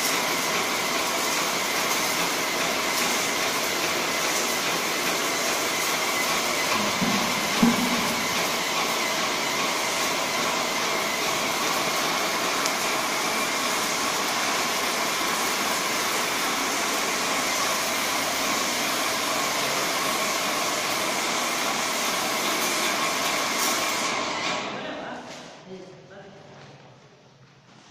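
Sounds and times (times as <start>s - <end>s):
paint sprayer hissing: 6.3s - 10.4s
brief knock: 6.8s - 8.5s.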